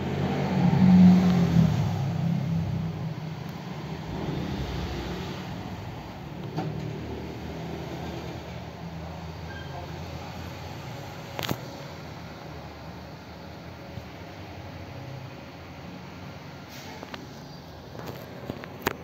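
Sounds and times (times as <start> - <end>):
vehicle engine running: 0.0 - 9.4.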